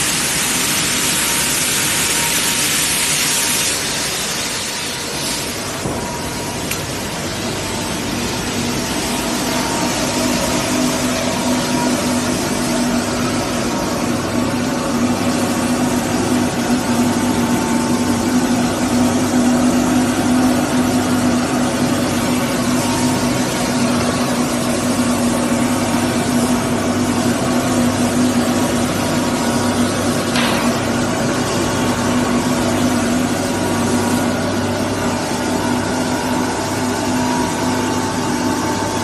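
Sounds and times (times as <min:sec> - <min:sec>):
veneer sanding machine running: 0:00.0 - 0:39.0.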